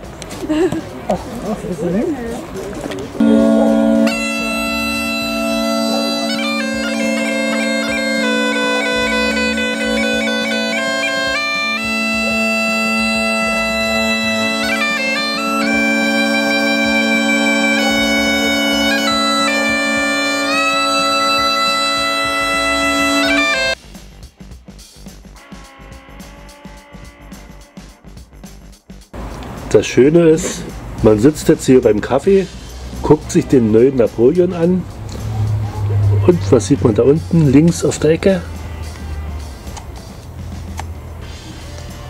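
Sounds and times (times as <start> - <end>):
bagpipe playing a tune: 3.2 - 23.8, 25.4 - 28.1.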